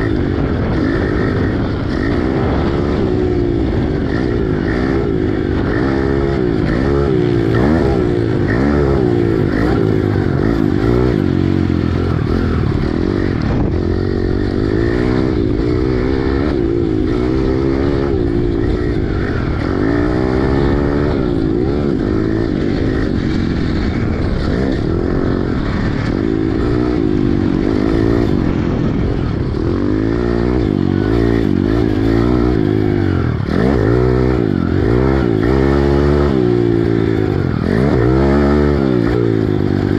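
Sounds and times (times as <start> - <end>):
motorbike engine revving: 0.0 - 39.9.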